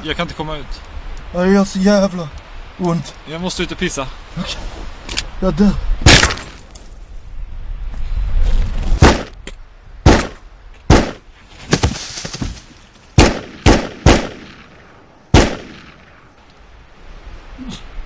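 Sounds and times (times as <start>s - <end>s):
pistol shots: 6.1s - 6.6s, 10.0s - 11.2s, 13.2s - 14.7s, 15.3s - 16.0s.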